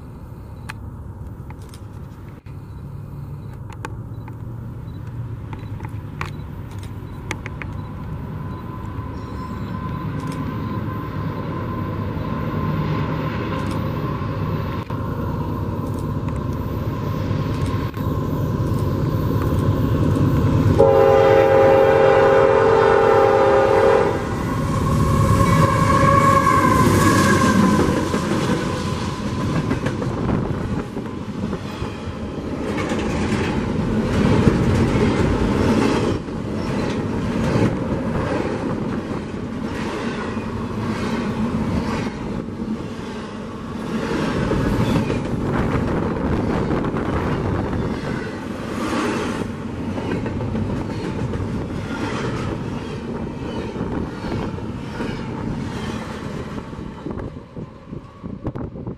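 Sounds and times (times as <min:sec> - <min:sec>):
diesel locomotive rumble: 0:00.0 - 0:58.9
high wavering tone: 0:08.4 - 0:12.8
locomotive air horn: 0:20.8 - 0:28.0
freight cars rolling on rails: 0:24.2 - 0:58.9.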